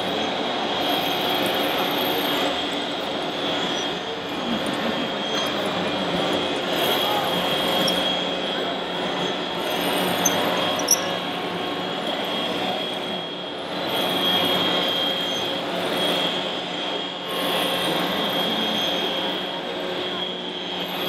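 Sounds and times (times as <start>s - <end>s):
toy bulldozer electric drive whining: 0.0s - 16.5s.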